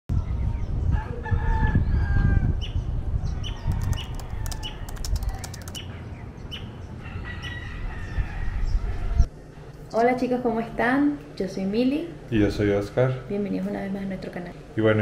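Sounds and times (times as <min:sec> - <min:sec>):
wind rumble on microphone: 0:00.1 - 0:05.4, 0:07.1 - 0:09.3
small birds chirping: 0:02.6 - 0:06.9
rooster crowing: 0:03.6 - 0:05.5, 0:07.0 - 0:09.3
typing clicks: 0:03.7 - 0:05.8.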